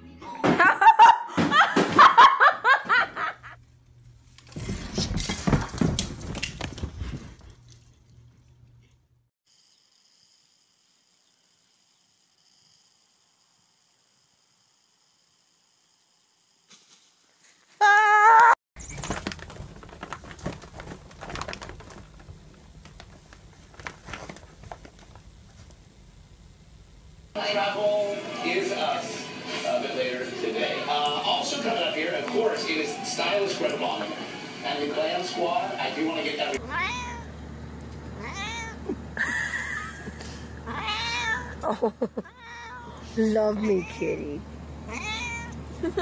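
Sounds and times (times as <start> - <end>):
fabric crinkling: 18.8 - 25.7
cat meowing: 36.6 - 37.3, 38.2 - 38.8, 40.7 - 41.6, 42.3 - 43.0, 44.9 - 45.6.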